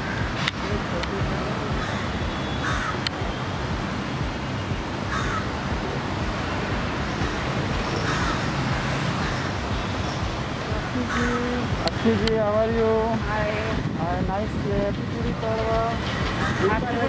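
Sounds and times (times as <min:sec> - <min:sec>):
crows cawing: 0:00.0 - 0:00.5, 0:01.7 - 0:03.1, 0:05.1 - 0:05.6, 0:07.1 - 0:09.6, 0:11.0 - 0:11.4, 0:16.3 - 0:16.8
street noise: 0:00.0 - 0:17.0.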